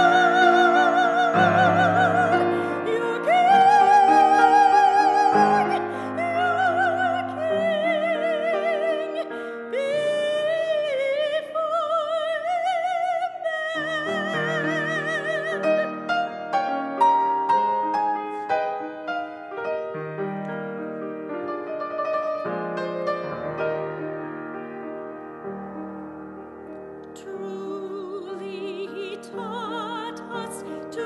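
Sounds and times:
woman singing operatically: 0:00.0 - 0:16.0, 0:27.2 - 0:31.0
grand piano: 0:00.0 - 0:31.0.

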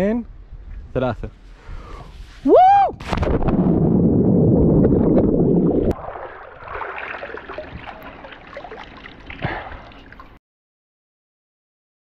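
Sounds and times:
water sloshing and dripping: 0:04.5 - 0:10.4.

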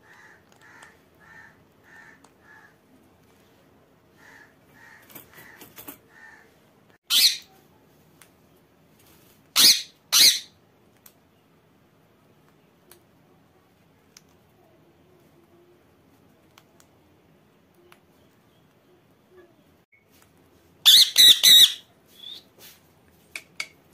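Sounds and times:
parakeets chattering calls: 0:07.1 - 0:07.5, 0:09.6 - 0:10.5, 0:20.8 - 0:21.8
parakeets squawking: 0:07.1 - 0:07.5, 0:09.6 - 0:10.5, 0:20.8 - 0:21.8
faint clicks: 0:14.1 - 0:14.5.

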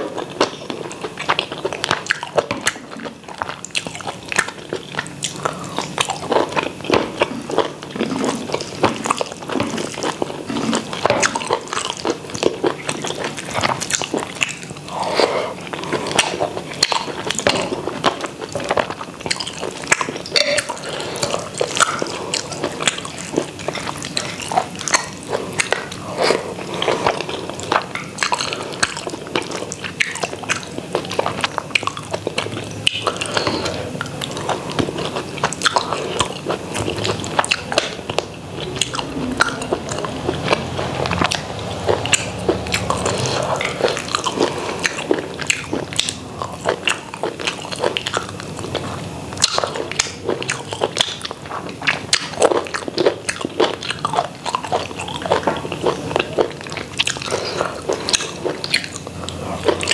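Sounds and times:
chewing and mouth smacks: 0:00.0 - 0:59.9.

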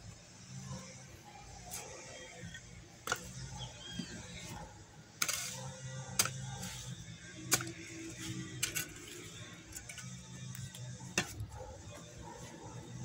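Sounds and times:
rustling scrape: 0:05.2 - 0:07.0.

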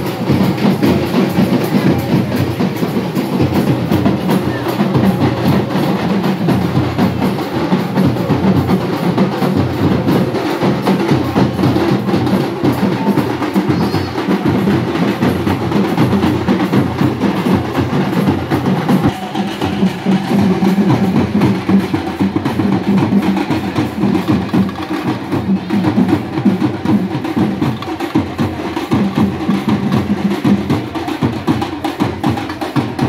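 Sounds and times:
fast dense drumming: 0:00.0 - 0:33.0.

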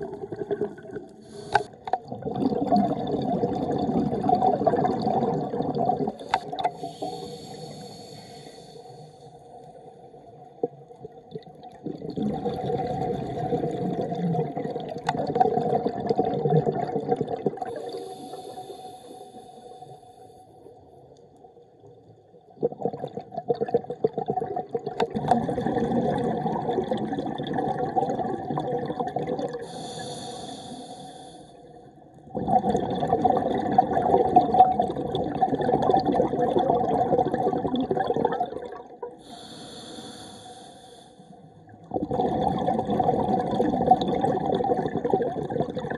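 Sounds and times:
bubbles rushing on exhalation: 0:00.0 - 0:07.0, 0:10.6 - 0:18.0, 0:22.6 - 0:29.8, 0:32.3 - 0:39.3, 0:41.8 - 0:45.9
regulator hissing inhalation: 0:01.2 - 0:01.8, 0:06.3 - 0:09.2, 0:17.8 - 0:20.3, 0:29.6 - 0:31.6, 0:39.2 - 0:41.2.

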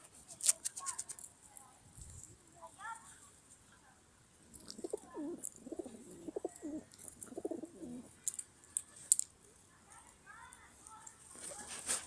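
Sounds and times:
pigeons cooing: 0:04.5 - 0:08.1.

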